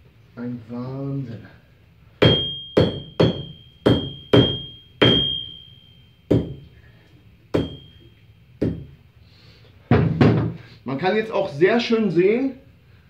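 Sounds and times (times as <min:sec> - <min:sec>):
hammer ringing on anvil: 0:02.2 - 0:06.8, 0:07.5 - 0:08.9.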